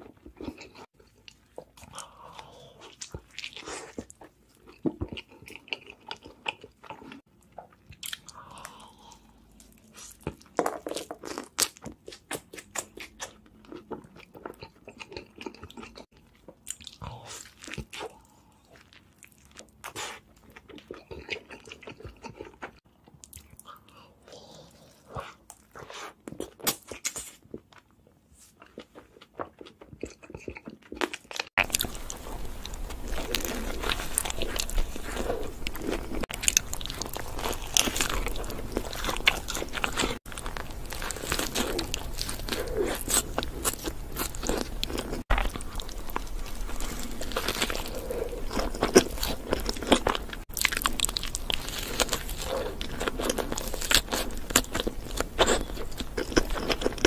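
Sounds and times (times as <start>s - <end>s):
crunchy chewing: 7.9s - 24.0s, 28.6s - 57.0s.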